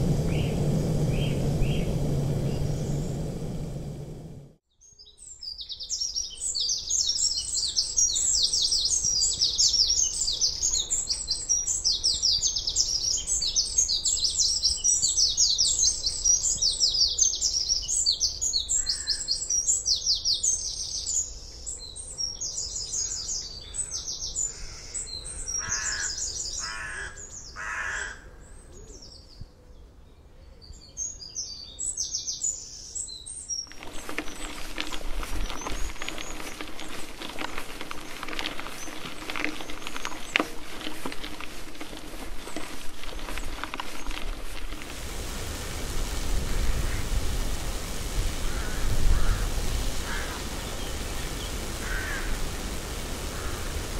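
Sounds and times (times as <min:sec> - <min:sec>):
bicycle tyres on gravel: 0:00.0 - 0:04.6, 0:33.5 - 0:53.9
songbirds singing: 0:04.7 - 0:44.3, 0:47.8 - 0:53.9
bird harsh calls: 0:23.1 - 0:28.4, 0:48.3 - 0:53.9.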